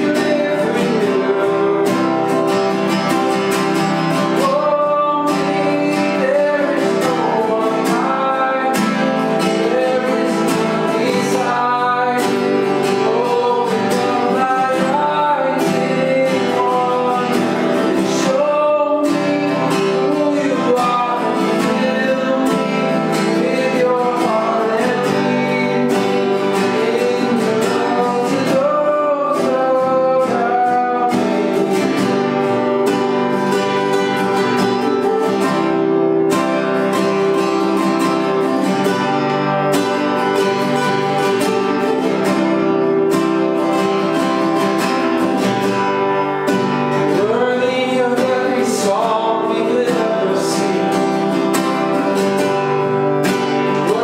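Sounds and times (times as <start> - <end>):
men singing: 0.0 - 35.4, 46.6 - 54.0
acoustic guitars strumming: 0.0 - 54.0.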